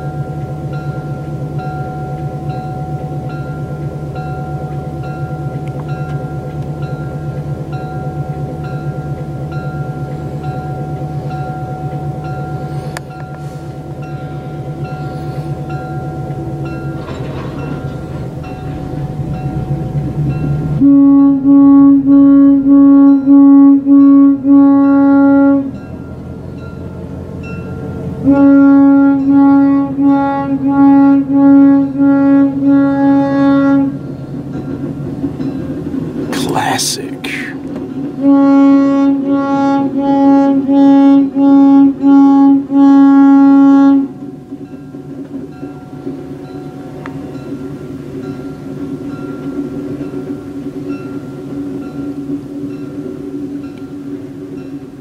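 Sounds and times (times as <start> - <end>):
train cars clicking on rails: 0.0 - 22.1, 23.0 - 36.4, 37.3 - 55.0
locomotive running: 0.0 - 55.0
locomotive horn blasts: 20.8 - 25.9, 28.2 - 34.1, 38.2 - 44.2.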